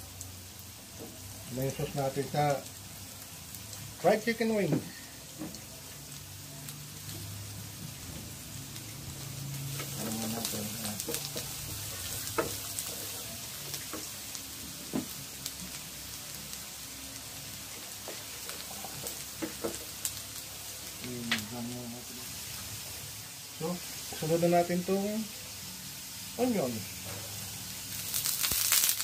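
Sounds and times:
garlic sizzling in butter: 0.0 - 29.0.

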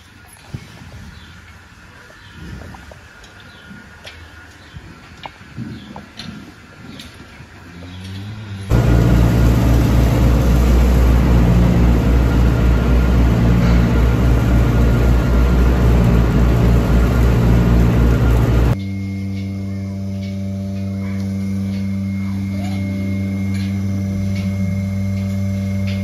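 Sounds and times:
tractor engine rumbling: 8.1 - 18.8.

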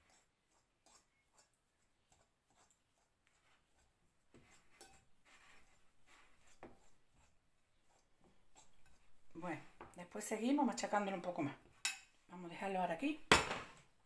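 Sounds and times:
fork scraping ceramic bowl: 0.0 - 9.7.

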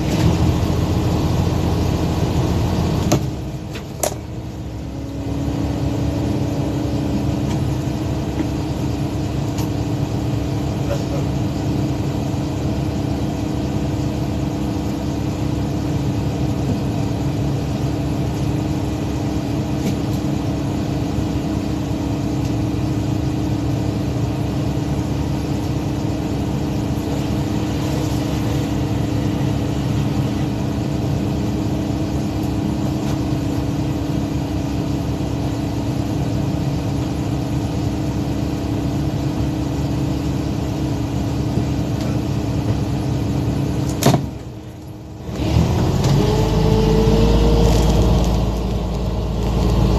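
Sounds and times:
boat engine droning: 0.0 - 49.9.

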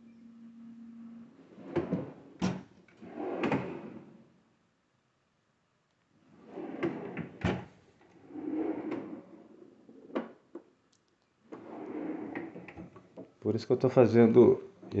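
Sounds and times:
drawers sliding on runners: 1.5 - 4.2, 6.3 - 10.3, 11.5 - 13.2.

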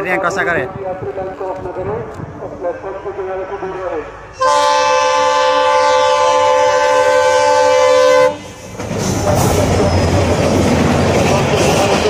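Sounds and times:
train running through station: 0.0 - 12.0
locomotive horn blast: 4.3 - 8.6.

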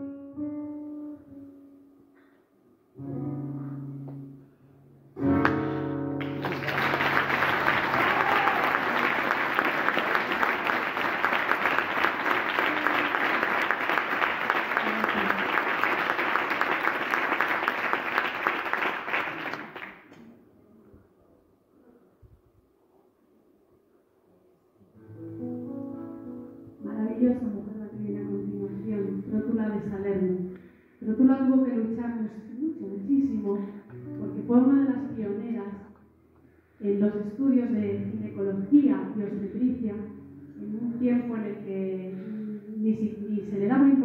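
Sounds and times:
live song held notes: 3.0 - 20.2, 25.0 - 29.9
audience clapping: 5.3 - 20.3.

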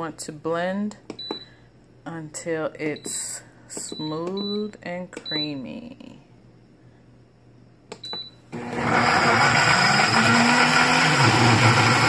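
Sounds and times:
blender motor chopping: 8.5 - 12.0.

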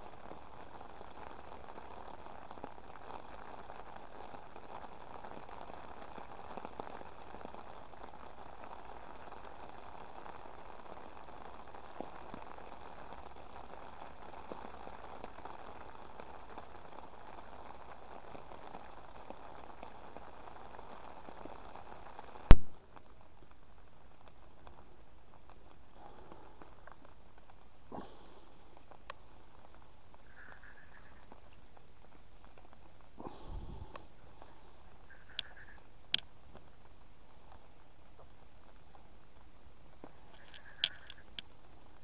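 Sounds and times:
rain on river and umbrella: 0.0 - 42.0.

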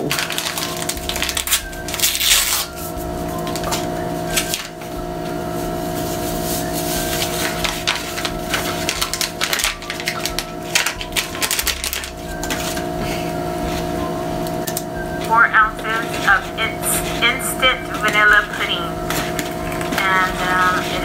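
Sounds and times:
steady low hum: 0.0 - 21.0
whisk clicking and scraping bowl: 14.5 - 21.0.

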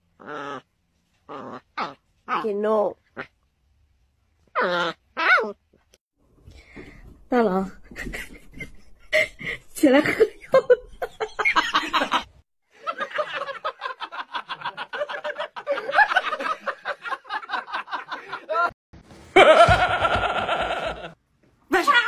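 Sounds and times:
person laughing: 19.4 - 21.2.

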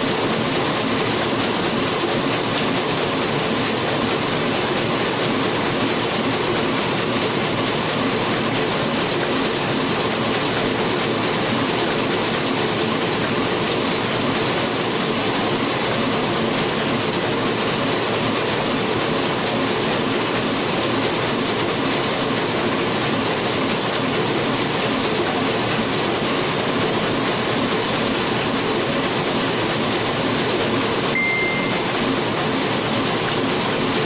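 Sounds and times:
printing press running: 0.0 - 34.0.

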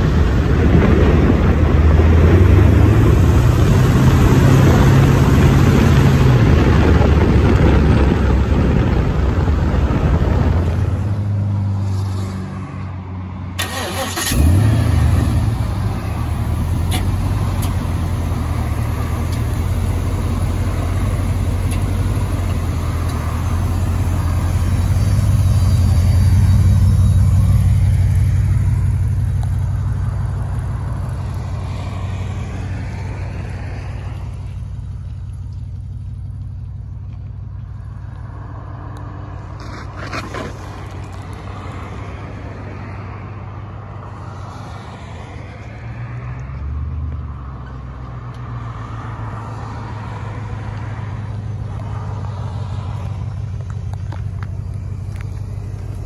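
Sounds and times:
car engine rumbling: 0.0 - 56.0.

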